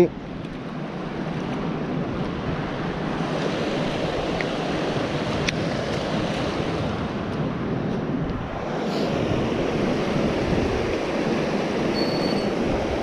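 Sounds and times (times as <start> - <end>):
wind on microphone: 0.0 - 13.0
river water running over rocks: 1.8 - 7.2.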